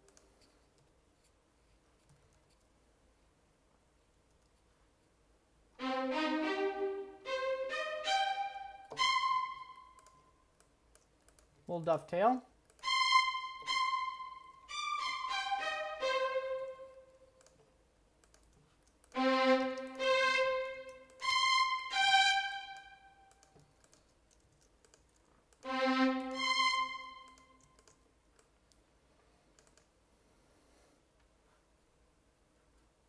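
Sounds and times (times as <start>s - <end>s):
keyboard and mouse clicks: 0.0s - 1.4s, 2.0s - 2.7s, 4.1s - 4.6s, 9.8s - 11.7s, 17.3s - 20.0s, 22.7s - 26.4s, 27.2s - 28.9s, 29.5s - 30.0s
sampled violins arpeggio: 5.8s - 10.1s, 12.8s - 17.2s, 19.2s - 23.3s, 25.6s - 27.6s.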